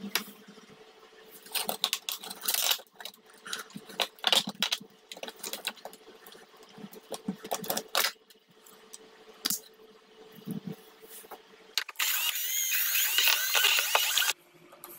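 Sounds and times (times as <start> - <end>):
plastic parts clicking and knocking: 1.5 - 6.0.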